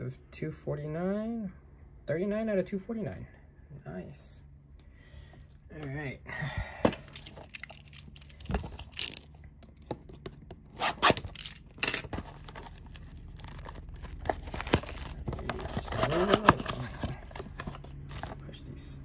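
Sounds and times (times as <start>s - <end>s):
cards scraping and rustling: 7.0s - 18.6s.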